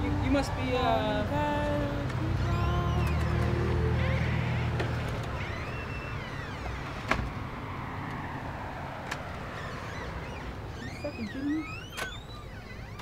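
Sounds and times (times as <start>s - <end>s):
birds chirping: 2.4s - 7.9s, 9.4s - 13.0s.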